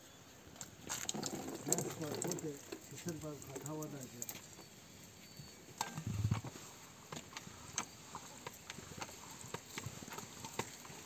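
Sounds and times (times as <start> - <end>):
heavy low thump: 6.0 - 6.4.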